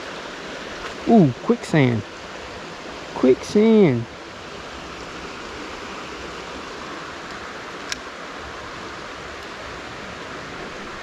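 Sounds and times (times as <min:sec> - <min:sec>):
creek water running over stones: 0:00.0 - 0:11.0
light click: 0:07.3 - 0:08.1.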